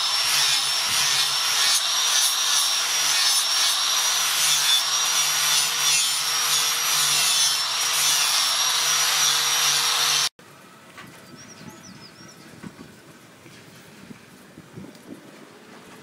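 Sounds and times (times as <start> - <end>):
angle grinder grinding steel: 0.0 - 10.3.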